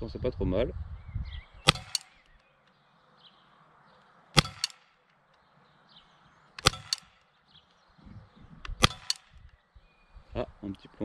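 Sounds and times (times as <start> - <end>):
pellet pistol shots: 1.6 - 2.4, 4.3 - 5.2, 6.5 - 7.4, 8.6 - 9.5.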